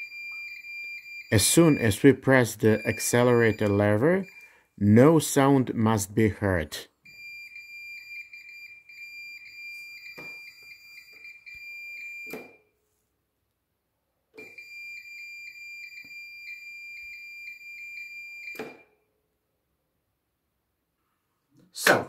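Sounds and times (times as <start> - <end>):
multimeter continuity beep: 0.0 - 4.6, 7.1 - 12.6, 14.4 - 18.8.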